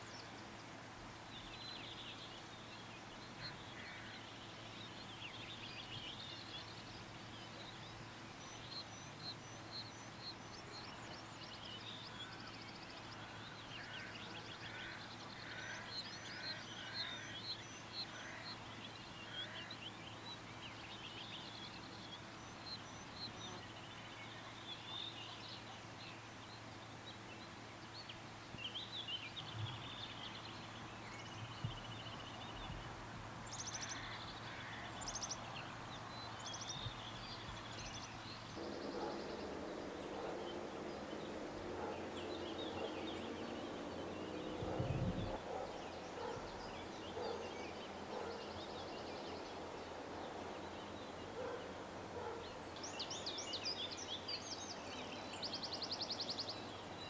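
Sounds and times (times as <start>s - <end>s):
outdoor ambience: 0.0s - 57.0s
songbirds singing: 0.0s - 57.0s.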